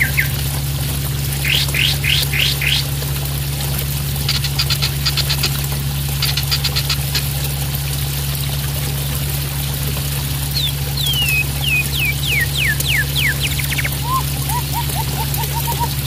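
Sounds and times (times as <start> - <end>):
water splashing in fountain: 0.0 - 16.0
bird rattling clicking calls: 1.4 - 2.9, 4.2 - 7.3, 11.0 - 16.0
low hum: 10.4 - 16.0.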